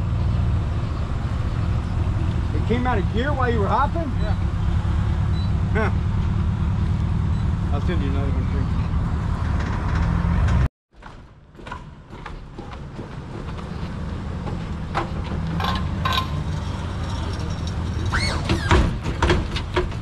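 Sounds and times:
car engine driving by: 0.0 - 10.7
high-pitched squeal: 16.2 - 18.8.

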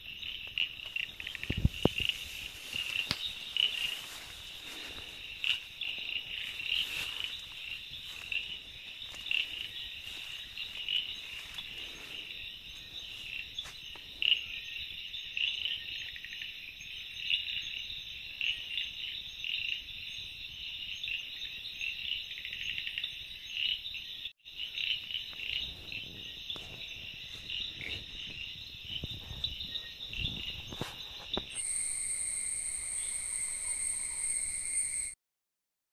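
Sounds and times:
high-pitched insect drone: 0.0 - 14.8, 26.3 - 35.2
crickets and insects trilling: 0.0 - 35.2
faint insect clicks: 0.2 - 11.9.

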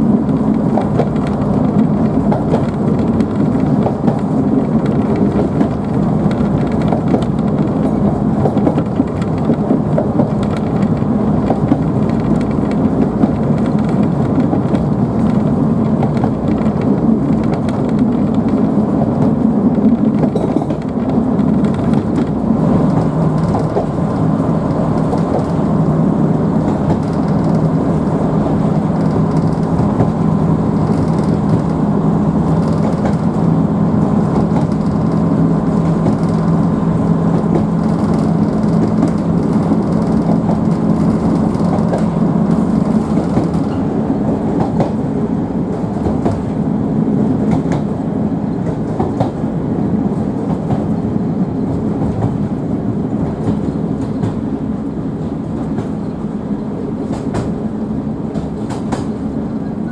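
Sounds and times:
train wheels rumbling on rails: 0.0 - 59.9
diesel engine drone: 20.8 - 59.9.

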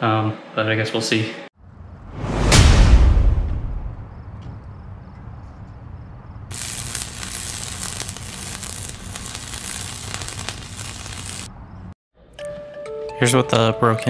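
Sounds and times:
crackling sizzling hiss: 6.5 - 11.9.

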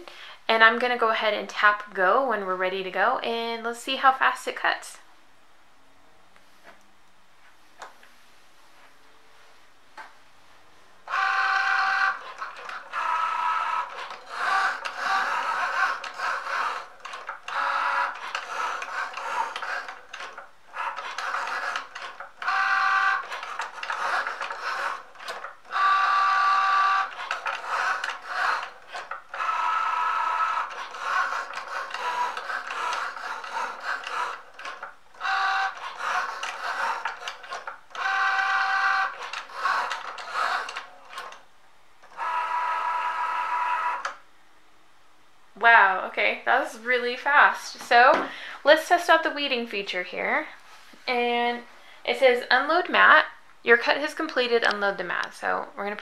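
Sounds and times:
cutting machine motors whirring: 11.1 - 41.4, 42.0 - 44.2.

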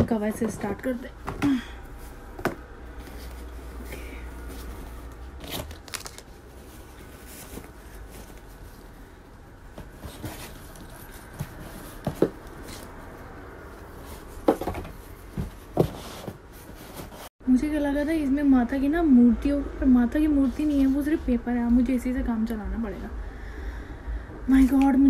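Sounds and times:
cloth and plastic rustling: 0.0 - 13.0.

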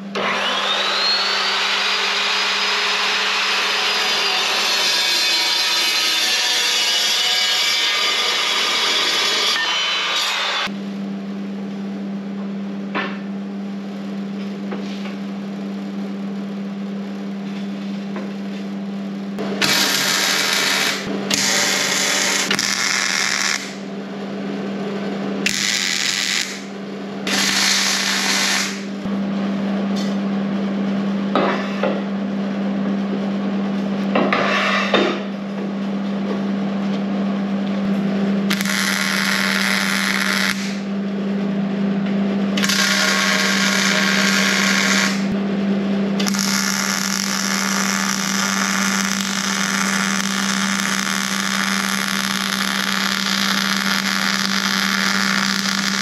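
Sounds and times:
steady hum: 10.7 - 56.0
welding arc crackling: 19.6 - 23.8, 25.4 - 26.7, 27.3 - 29.1, 38.5 - 40.8, 42.6 - 45.4, 46.2 - 56.0.

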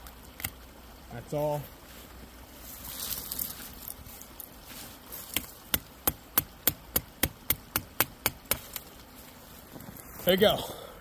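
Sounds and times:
knife hacking into wood: 5.3 - 8.8.

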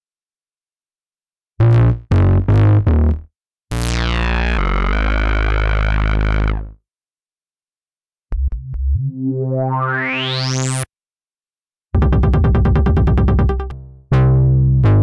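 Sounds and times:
synthesizer bass notes: 1.6 - 6.7, 8.3 - 10.9, 12.0 - 15.0.

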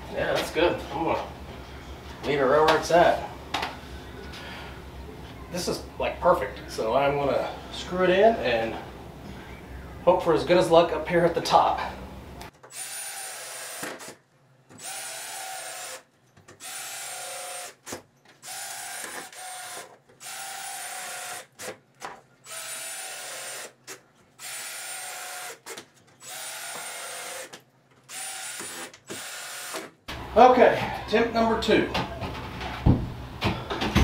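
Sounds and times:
cordless drill driving screws: 12.7 - 14.2, 14.8 - 16.0, 16.6 - 21.8, 22.4 - 29.9.

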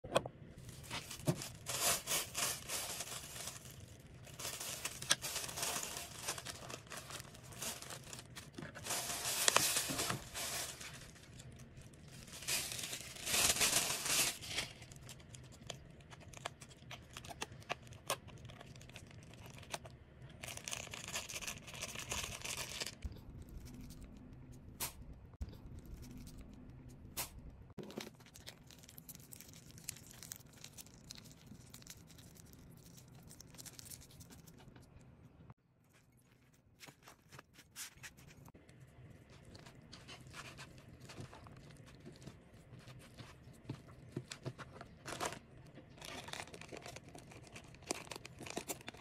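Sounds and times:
plastic bags crinkling: 0.6 - 23.1, 39.3 - 49.0.

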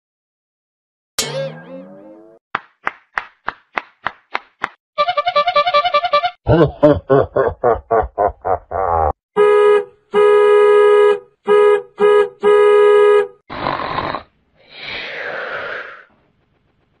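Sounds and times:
horn honking: 5.0 - 6.4, 9.4 - 13.4.

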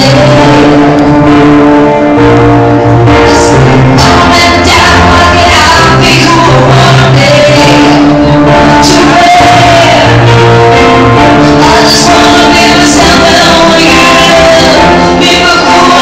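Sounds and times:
pop music: 0.0 - 16.0.

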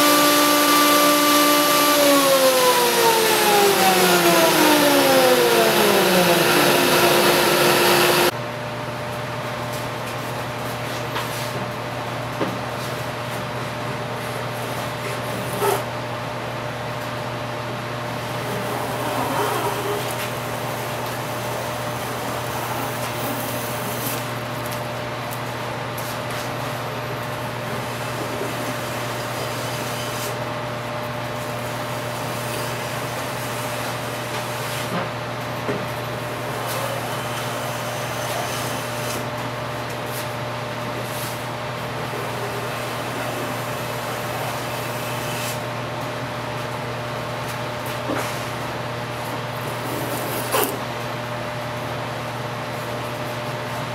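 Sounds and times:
hand plane shaving wood: 0.0 - 8.3
shop equipment droning: 0.0 - 8.4, 14.2 - 53.9.

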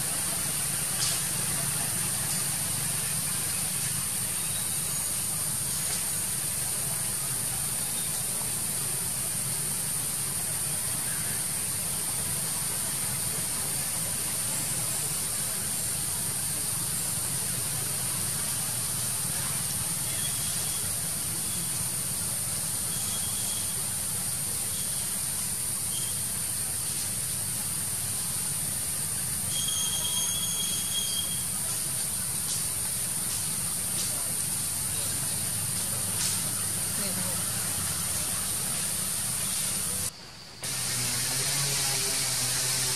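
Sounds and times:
high whistle-like tones: 29.5 - 31.6.

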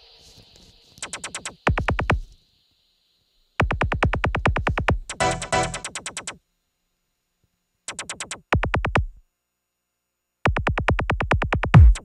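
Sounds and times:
electronic drum machine beat: 1.0 - 2.3, 3.6 - 6.4, 7.9 - 9.2, 10.5 - 12.0
deep kick drum dropping in pitch: 1.7 - 2.3, 3.6 - 5.1, 8.6 - 9.2, 10.5 - 12.0.

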